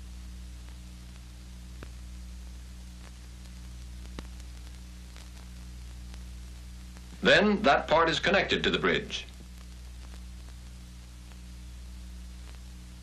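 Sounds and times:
film soundtrack hiss: 0.0s - 13.0s
faint clicks: 0.6s - 2.0s, 3.0s - 7.2s, 9.3s - 11.4s, 12.4s - 12.7s.

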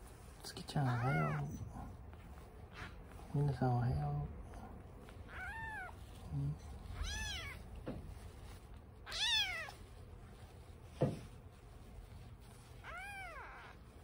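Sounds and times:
low handling rustle: 0.0s - 14.0s
kitten meowing: 0.9s - 1.6s, 5.3s - 6.1s, 6.9s - 7.7s, 9.0s - 9.8s, 12.8s - 13.8s.

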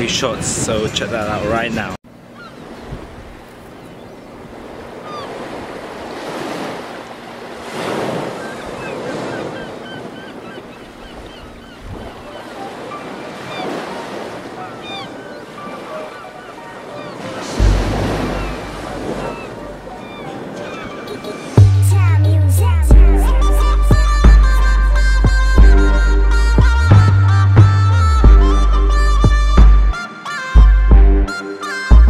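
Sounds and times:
sea surf washing in: 2.6s - 21.8s
wind buffeting microphone: 7.8s - 13.9s.

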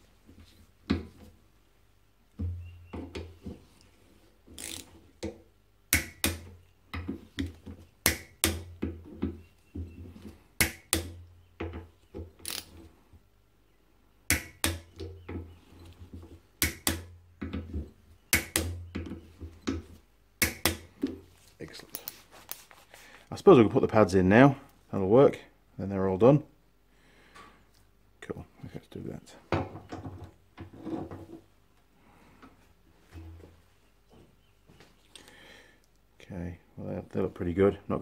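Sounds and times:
tool handling noise: 4.4s - 12.9s, 14.4s - 23.2s
torque wrench clicking: 4.6s - 4.9s, 12.4s - 12.7s.

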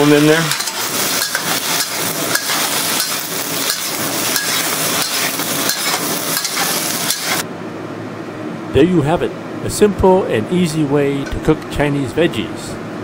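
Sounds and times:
vegetables sizzling in a wok: 0.0s - 7.5s
spatula scraping a wok: 0.5s - 7.4s.

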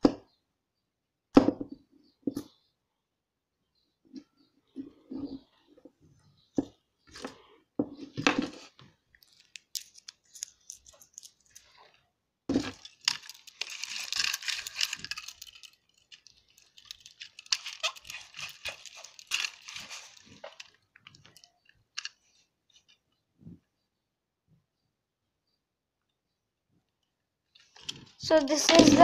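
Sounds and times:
sticker peeling and scratching: 12.7s - 20.7s.

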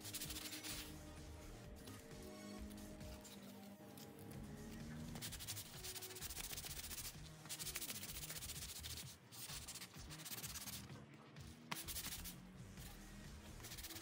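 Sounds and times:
sanding block rubbing wood: 0.0s - 0.9s, 5.2s - 10.8s, 11.7s - 12.4s, 13.6s - 14.0s.

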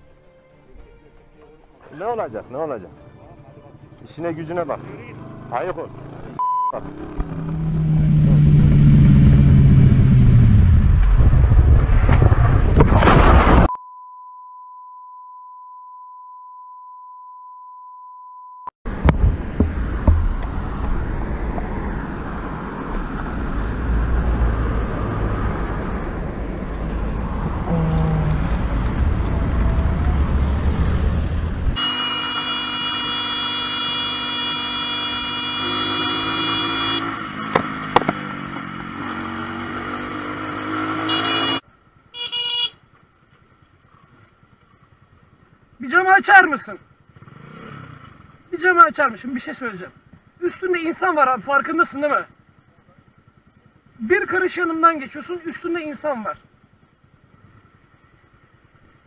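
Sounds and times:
steady bleep tone: 13.7s - 18.7s
long vehicle horn: 31.8s - 37.2s, 40.9s - 42.8s
motorcycle engine running: 52.3s - 54.1s, 56.4s - 59.0s.

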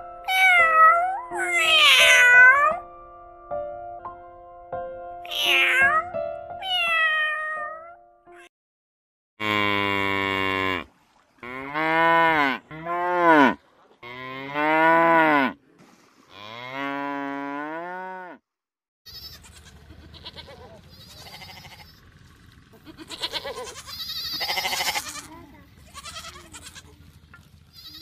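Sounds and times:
cat meowing: 0.3s - 2.8s, 5.2s - 8.5s
water buffaloes mooing: 9.4s - 15.6s, 16.3s - 18.4s, 19.2s - 28.0s.

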